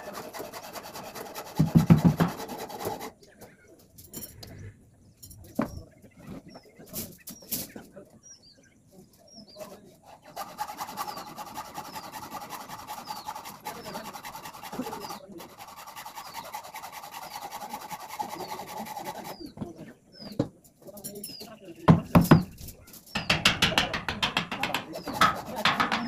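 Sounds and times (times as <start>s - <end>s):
tool scraping steel: 0.0s - 3.2s, 10.0s - 19.6s, 22.1s - 26.0s
knocks on metal: 1.6s - 2.4s, 21.9s - 22.6s, 23.2s - 26.0s
bird chirping: 3.2s - 26.0s.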